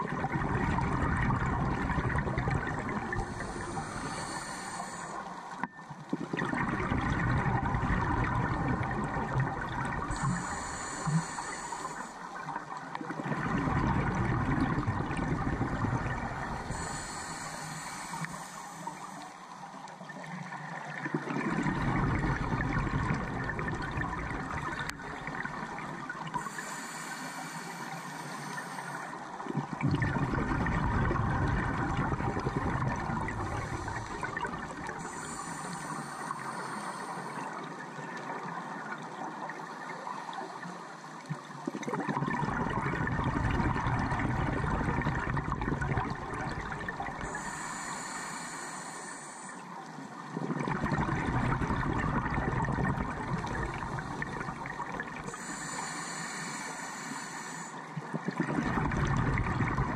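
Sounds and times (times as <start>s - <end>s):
diver bubbly exhalations: 0.0s - 5.0s, 6.1s - 11.3s, 13.0s - 17.6s, 21.0s - 26.7s, 29.5s - 35.4s, 41.6s - 47.6s, 50.3s - 55.4s, 58.1s - 59.9s
regulator hiss: 3.1s - 5.6s, 10.1s - 12.3s, 16.4s - 19.2s, 26.4s - 29.2s, 33.2s - 37.6s, 47.2s - 49.8s, 55.2s - 57.8s.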